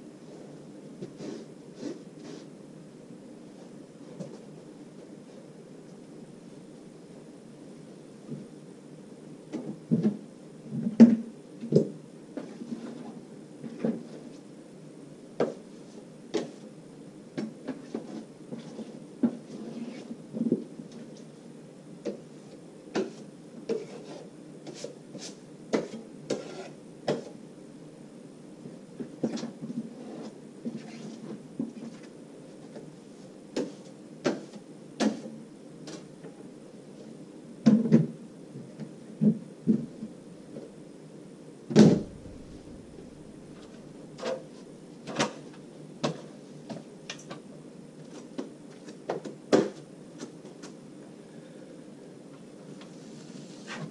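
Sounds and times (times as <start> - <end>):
steady low hum: 0.0 - 53.9
drywall knife scraping and clicking: 23.7 - 27.3.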